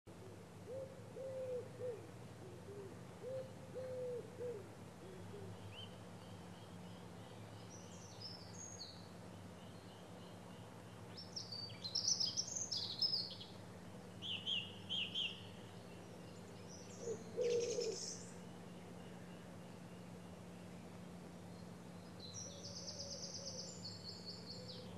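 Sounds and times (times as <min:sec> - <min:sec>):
low hooting bird calls: 0:00.1 - 0:08.7, 0:09.4 - 0:24.9
faint low hum: 0:00.1 - 0:24.9
small birds chirping and trilling: 0:05.2 - 0:24.9.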